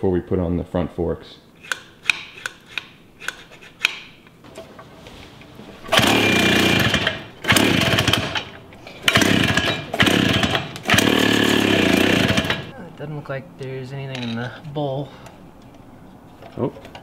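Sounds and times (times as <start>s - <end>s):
engine cranking without starting: 5.9s - 12.7s
pull-start rope pulls: 5.9s - 12.7s.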